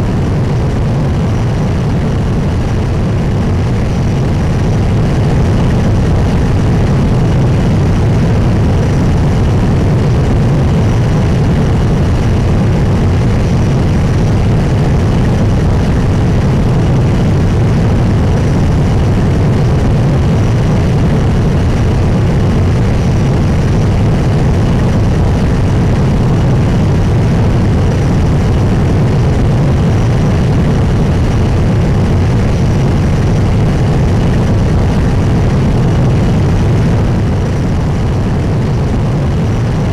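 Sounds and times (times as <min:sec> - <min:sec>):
jet engine roaring: 0:00.0 - 0:39.9.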